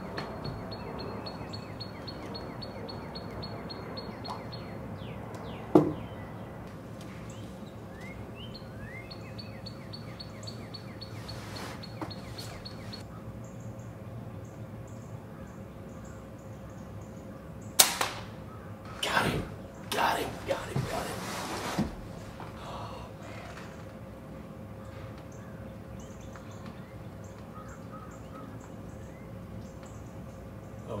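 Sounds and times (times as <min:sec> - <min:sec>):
sliding bird calls: 0:00.0 - 0:06.2, 0:07.0 - 0:13.1, 0:18.4 - 0:29.2
birds chipping: 0:00.0 - 0:31.0.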